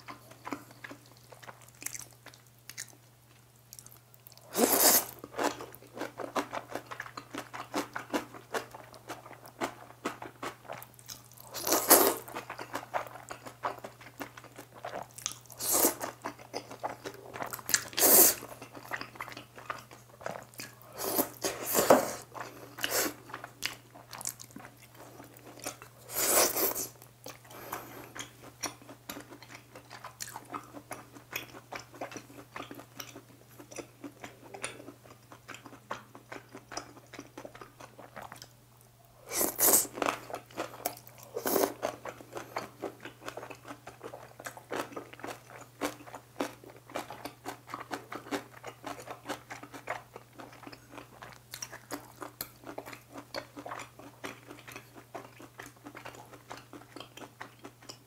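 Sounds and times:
wet chewing and crunching: 0.0s - 38.6s, 39.3s - 58.0s
loud slurp of noodles: 4.5s - 5.1s, 18.0s - 18.4s, 26.1s - 26.9s.

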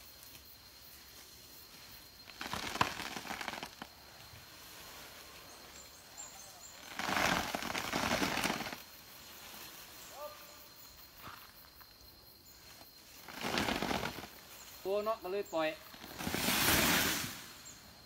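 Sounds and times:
palm fronds rustling and crackling: 0.0s - 11.8s, 12.5s - 18.0s.

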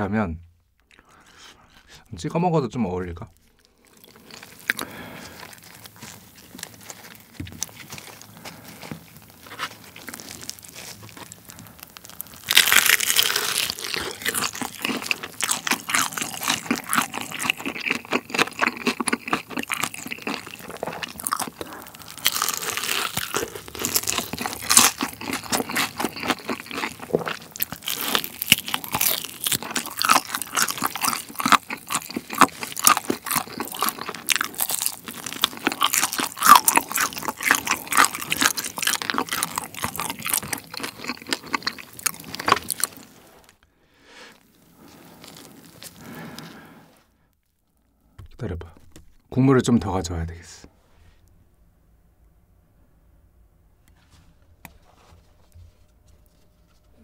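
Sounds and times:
crunching bites and chewing: 3.4s - 43.6s, 44.3s - 46.7s.

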